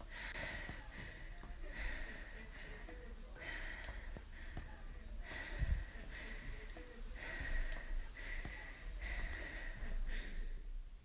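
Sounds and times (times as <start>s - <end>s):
person breathing quickly: 0.0s - 11.0s
faint taps: 3.8s - 4.8s.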